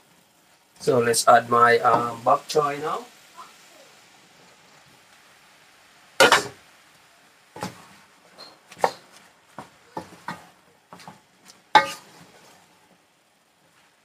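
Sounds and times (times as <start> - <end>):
wooden spoon knocking on a pan: 11.8 - 12.0.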